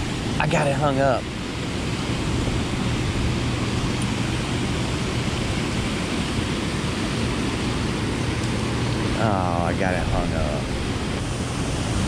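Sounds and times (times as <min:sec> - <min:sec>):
low hum: 0:00.0 - 0:12.0
turbulent water rushing: 0:00.0 - 0:12.0.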